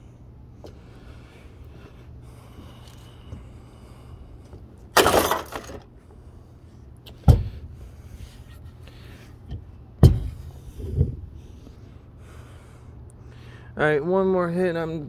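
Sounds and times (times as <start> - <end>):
sledgehammer smashing plastic: 5.0 - 5.9
heavy thuds: 7.2 - 7.8, 9.5 - 11.5.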